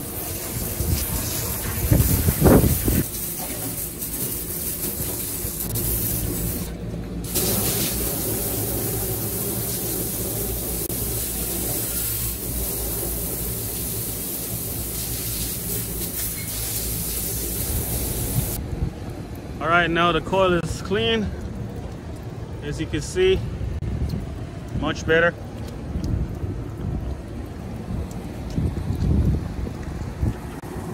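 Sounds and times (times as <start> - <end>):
water spraying from hose: 0.0 - 18.6.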